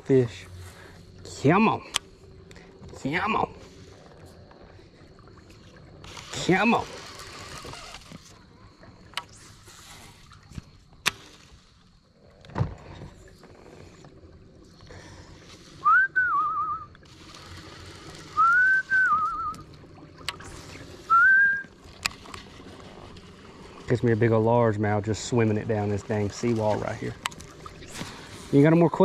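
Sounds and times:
person whistling: 15.8 - 16.9, 18.4 - 19.6, 21.1 - 21.7.

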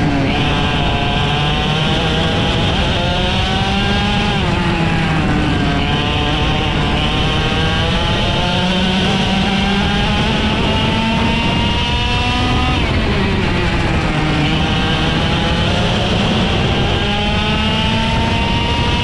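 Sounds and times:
kart engine running hard: 0.0 - 19.0.

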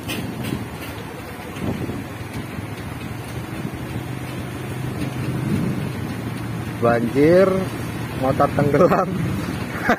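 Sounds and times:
wind buffeting microphone: 0.0 - 6.4
motorcycle engine rumbling: 0.0 - 9.9.

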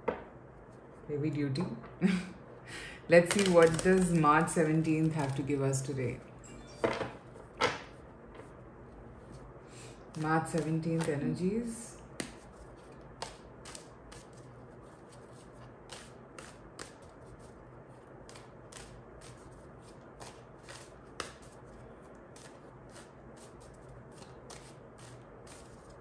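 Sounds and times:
cards being shuffled: 3.2 - 4.2, 10.1 - 11.2, 12.2 - 26.0.

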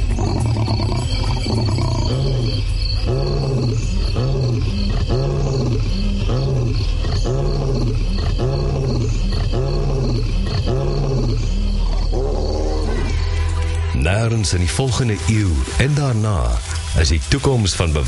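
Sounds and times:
lion roaring: 0.0 - 13.4.

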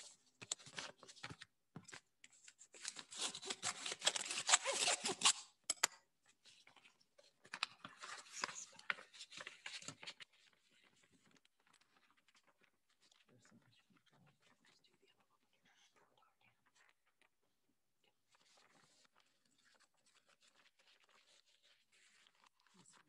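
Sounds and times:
paper rustling and crackling: 0.0 - 5.3, 6.6 - 13.3, 18.3 - 23.0.

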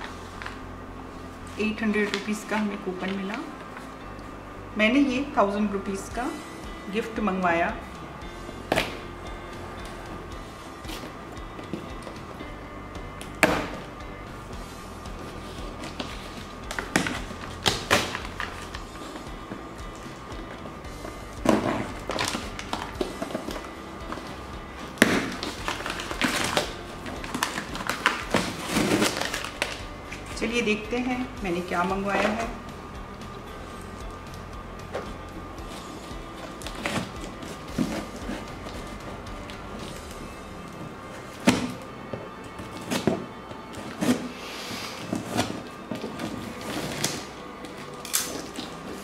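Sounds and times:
background music: 0.0 - 49.0
paper rustling and ripping: 25.2 - 30.2
scissors snipping packing tape: 47.9 - 48.8.

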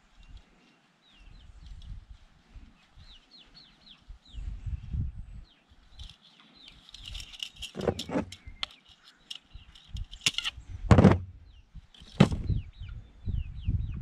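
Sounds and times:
wire and pliers clicking: 6.0 - 10.6.

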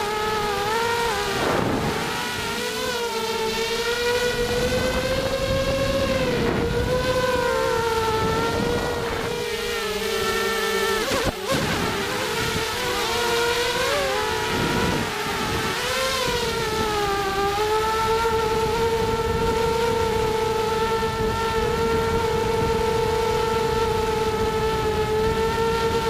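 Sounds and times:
low wind rumble: 0.0 - 26.0
quadcopter motors whining: 0.0 - 26.0.

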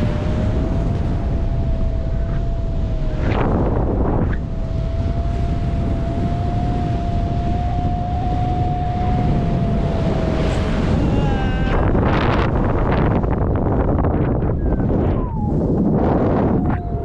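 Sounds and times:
wind rushing over microphone: 0.0 - 17.0
thin steady whistle: 1.2 - 9.8.

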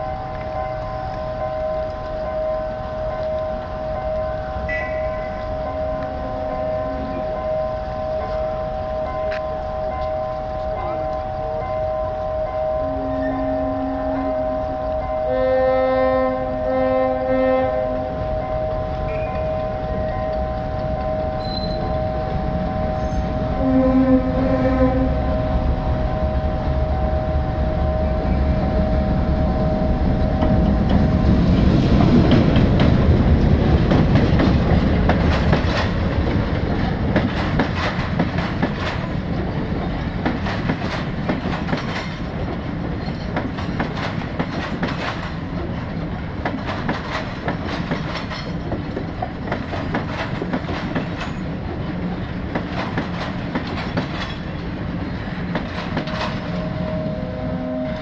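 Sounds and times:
train horn chord: 0.0 - 30.6, 56.5 - 58.0
wheels clattering over rail joints: 30.2 - 57.0.

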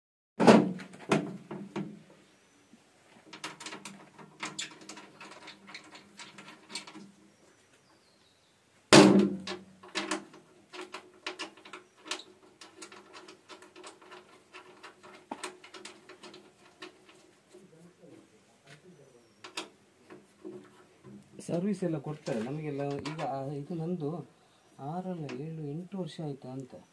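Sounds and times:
metal panel clicks and rattles: 3.3 - 7.1, 9.0 - 17.2, 19.4 - 21.2, 22.2 - 23.4
loud metallic bangs: 8.9 - 9.6.

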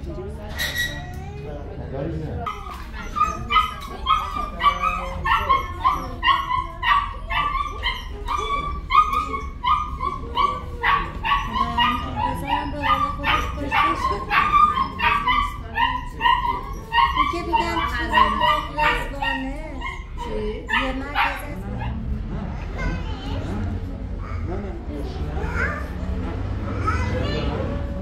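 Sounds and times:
dog whining and yelping: 2.5 - 21.9.

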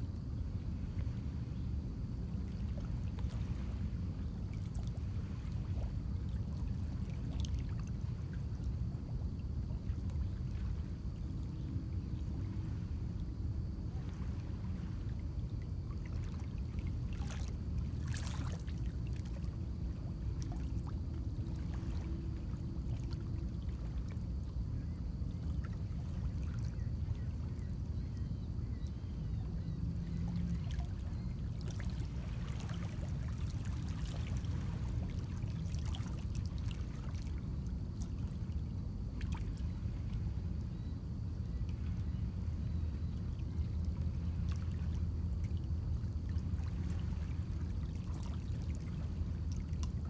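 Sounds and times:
wind rumble on microphone: 0.0 - 50.0
faint splashes: 4.5 - 11.6, 13.8 - 24.2, 30.0 - 40.6, 41.5 - 50.0.

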